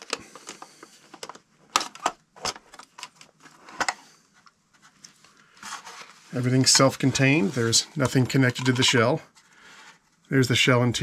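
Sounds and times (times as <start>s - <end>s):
plastic clicks and handling: 0.0s - 5.2s.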